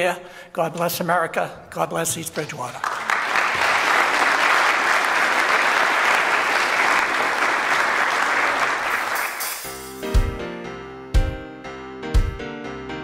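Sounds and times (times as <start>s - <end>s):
audience applauding: 2.5s - 9.7s.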